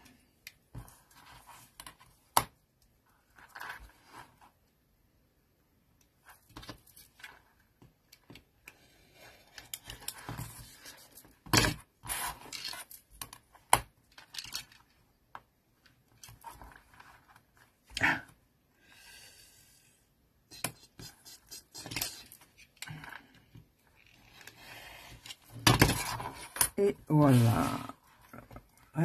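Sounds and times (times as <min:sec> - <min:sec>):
paper rustling and scraping: 0:12.0 - 0:13.0.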